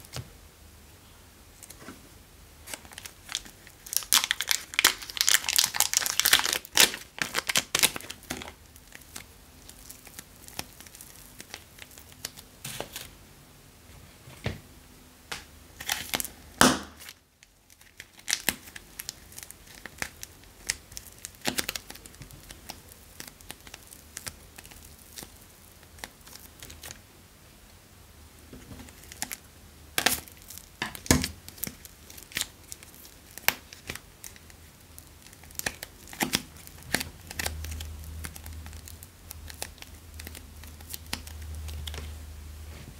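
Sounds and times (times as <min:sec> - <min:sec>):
plastic wrapping crinkling and tearing: 0:02.6 - 0:13.1, 0:15.8 - 0:27.0, 0:28.6 - 0:42.2.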